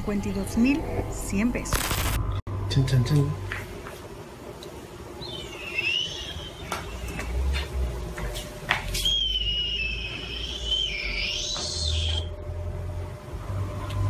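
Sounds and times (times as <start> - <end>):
high whistling tone: 5.3 - 7.2, 8.9 - 12.4.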